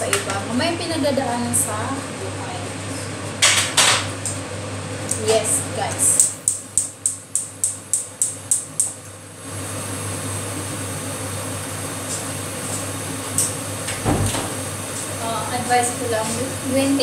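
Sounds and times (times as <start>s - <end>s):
gas hob igniter clicking: 6.2s - 9.1s
steady gas rushing: 9.2s - 17.0s.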